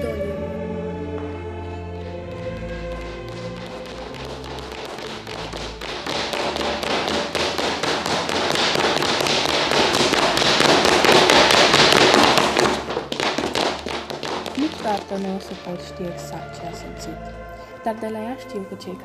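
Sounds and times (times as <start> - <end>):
heels clicking on hard floor: 1.1 - 16.2.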